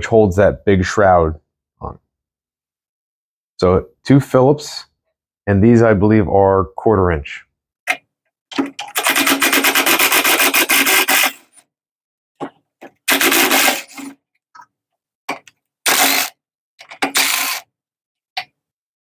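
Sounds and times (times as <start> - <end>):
ratcheting screwdriver clicks: 15.4 - 17.6.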